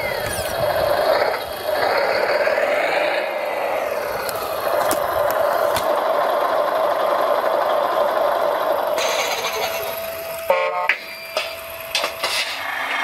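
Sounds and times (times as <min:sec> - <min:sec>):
mechanical whine: 0:00.0 - 0:06.0, 0:08.9 - 0:13.0.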